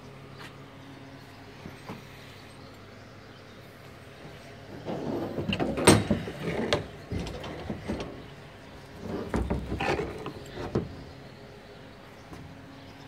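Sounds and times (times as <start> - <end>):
metal fence panels rattling: 4.7 - 11.2.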